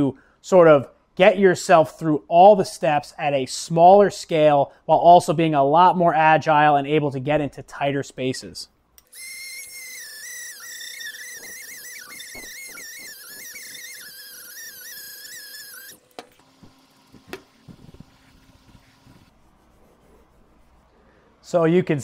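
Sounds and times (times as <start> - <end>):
die grinder whining on metal: 9.0 - 19.3.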